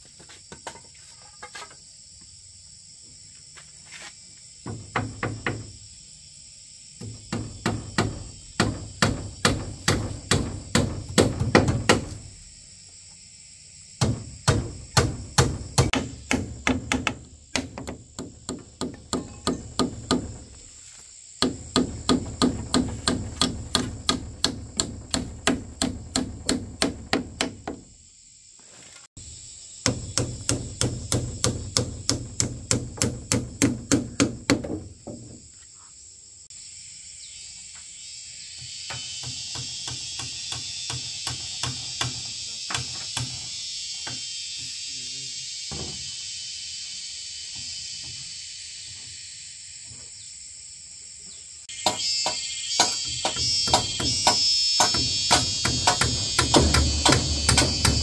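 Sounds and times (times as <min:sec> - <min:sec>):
hammer driving nails: 0:14.0 - 0:20.4, 0:21.4 - 0:27.8, 0:29.8 - 0:34.8, 0:51.8 - 0:58.0
steady high hiss: 0:35.5 - 0:58.0.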